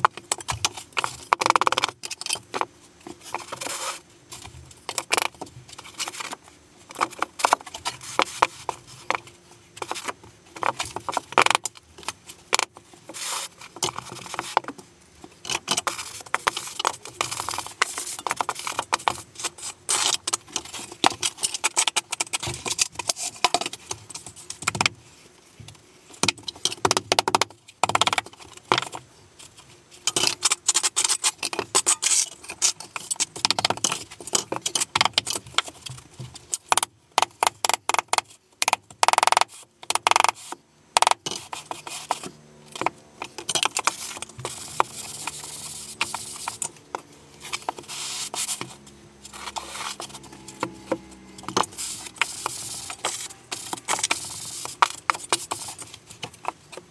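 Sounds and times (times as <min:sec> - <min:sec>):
trowel scraping mortar: 0:03.3 - 0:04.0, 0:30.2 - 0:33.2, 0:41.2 - 0:56.9.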